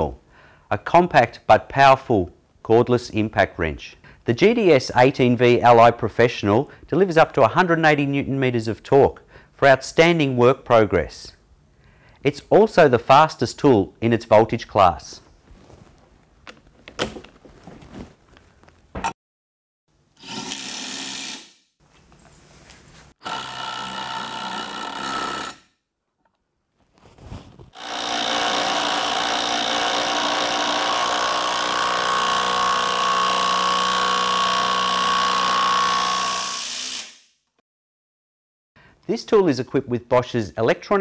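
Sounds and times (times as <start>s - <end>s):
handling clicks and knocks: 16.4s - 17.6s
impact wrench driving screws: 20.2s - 21.6s.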